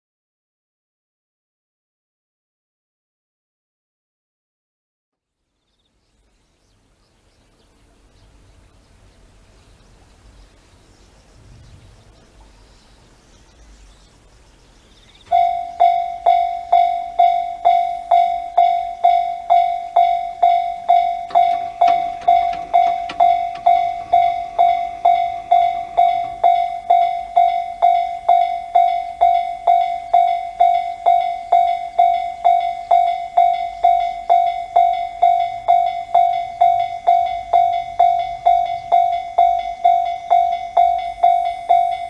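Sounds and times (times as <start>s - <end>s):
level crossing warning bell: 15.3s - 42.0s.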